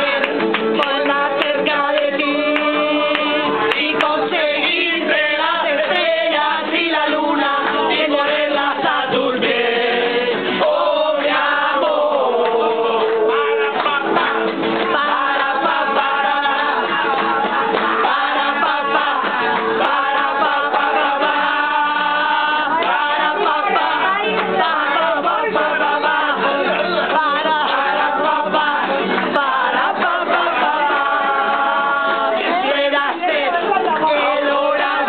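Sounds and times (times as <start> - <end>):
group singing in chorus: 0.0 - 35.0
people joining in singing: 0.0 - 35.0.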